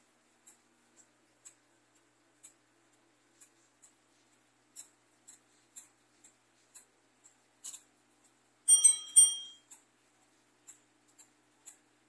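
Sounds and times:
clock ticking: 0.2s - 9.9s, 10.6s - 12.0s
clock bell strokes: 8.7s - 9.6s.

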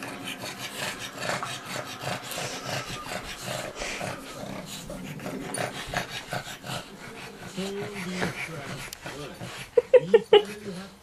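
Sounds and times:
dog breathing noisily: 0.0s - 11.0s
dog growling: 0.0s - 11.0s.

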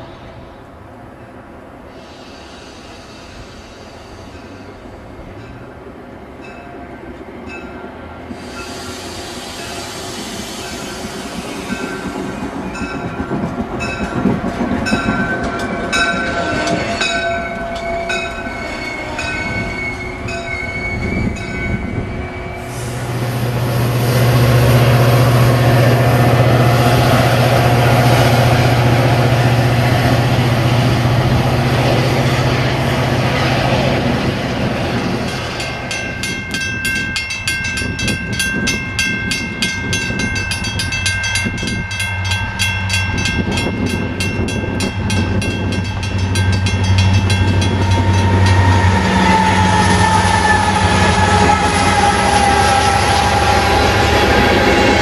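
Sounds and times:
train brake and wheel squeal: 1.9s - 5.0s, 8.3s - 13.0s, 14.9s - 23.2s, 45.9s - 55.0s
diesel locomotive rumble: 7.5s - 55.0s.

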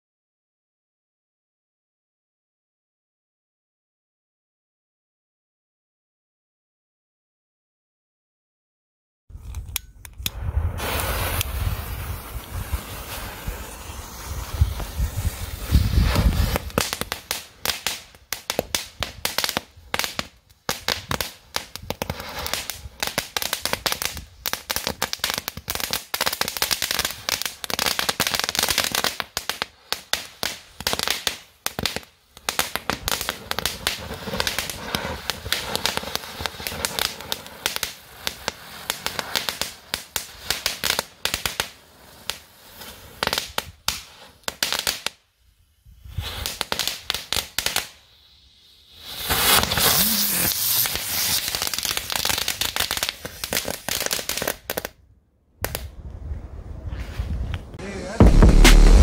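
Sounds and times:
firecrackers crackling and popping: 10.0s - 55.0s, 55.6s - 56.4s, 57.7s - 59.0s.

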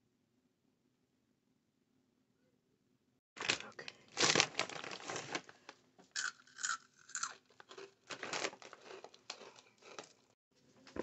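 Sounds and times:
chip bag crinkling: 3.4s - 10.3s.

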